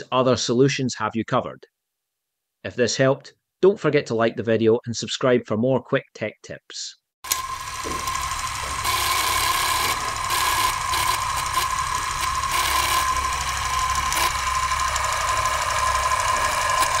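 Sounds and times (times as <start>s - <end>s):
film projector clatter: 7.3s - 17.0s.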